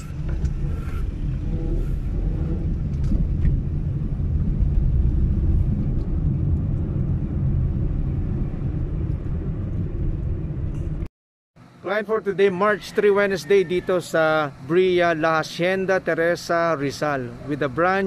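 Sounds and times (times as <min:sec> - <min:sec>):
car engine rumble: 0:00.0 - 0:11.8
tyres on road: 0:00.0 - 0:18.0.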